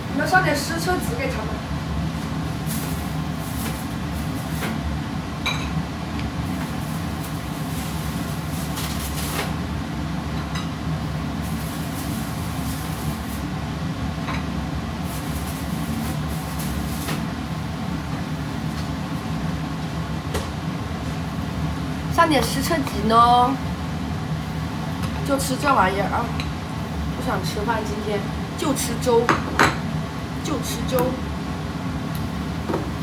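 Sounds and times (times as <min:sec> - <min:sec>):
refrigerator hum: 0:00.0 - 0:33.0.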